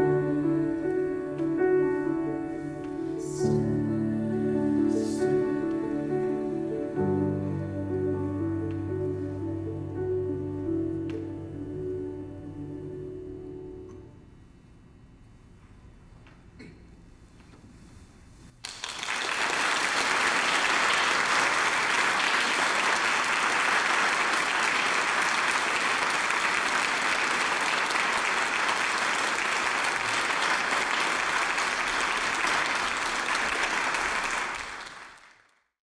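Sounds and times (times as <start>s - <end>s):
audience applauding: 18.6s - 35.6s.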